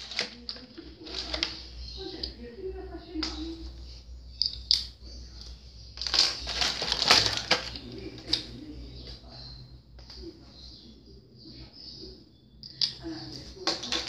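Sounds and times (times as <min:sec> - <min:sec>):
markers clattering and paper rustling: 0:00.0 - 0:02.4, 0:04.3 - 0:09.2, 0:12.6 - 0:14.0
markers clicking: 0:04.3 - 0:08.5.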